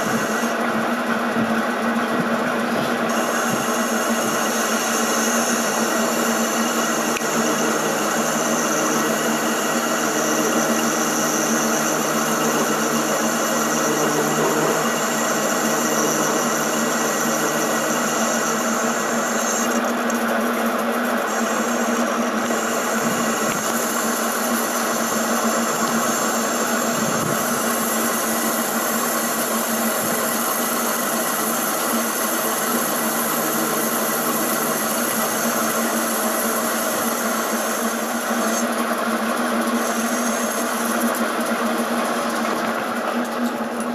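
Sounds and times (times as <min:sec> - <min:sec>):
metal lathe cutting: 0:00.0 - 0:43.9.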